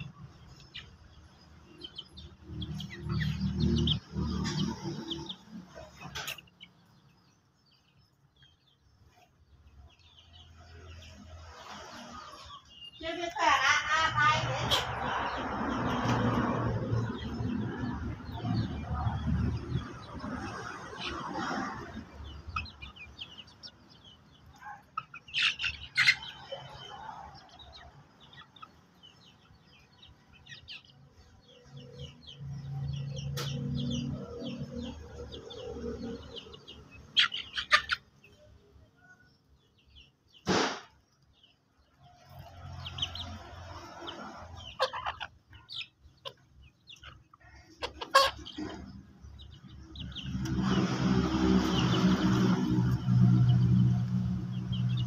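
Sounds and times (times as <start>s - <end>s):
chickens clucking: 0.0s - 55.0s
short loud burst: 40.4s - 41.0s.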